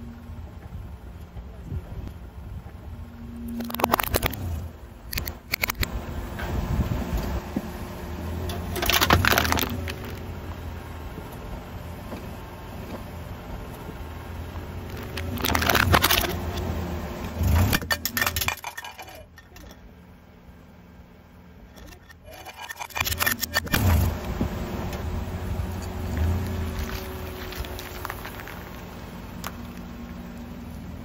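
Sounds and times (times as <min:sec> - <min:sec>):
car rolling rumble: 0:00.0 - 0:31.0
can crunching under tyre: 0:08.5 - 0:10.3, 0:14.9 - 0:16.6, 0:26.0 - 0:28.9.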